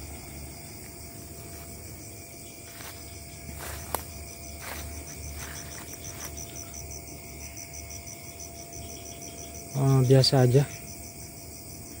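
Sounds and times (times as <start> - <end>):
night insects chirping: 0.0 - 12.0
footsteps through undergrowth: 0.8 - 7.0.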